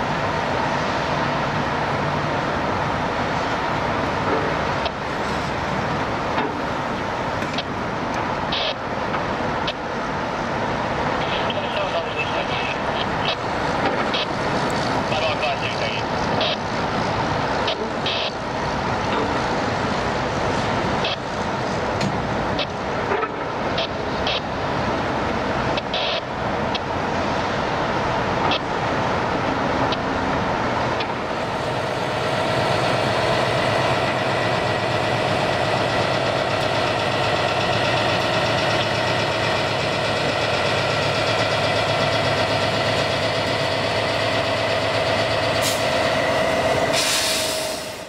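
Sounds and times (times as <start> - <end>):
diesel locomotive engine whine: 0.0 - 48.0
short hiss: 46.9 - 48.0.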